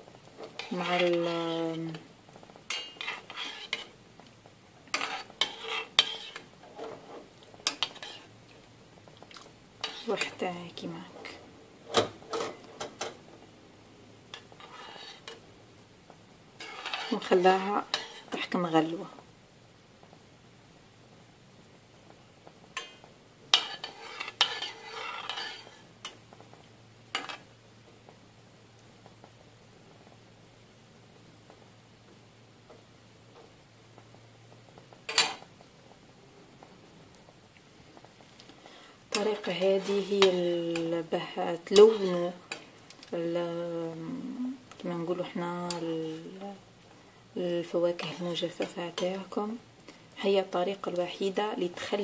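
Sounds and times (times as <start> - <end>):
metal spoon stirring in saucepan: 0.3 - 2.0, 2.6 - 4.0, 4.8 - 8.6, 9.8 - 11.4, 14.3 - 15.4, 16.6 - 18.6, 22.8 - 26.2, 27.1 - 27.5, 39.1 - 43.1, 47.9 - 49.4.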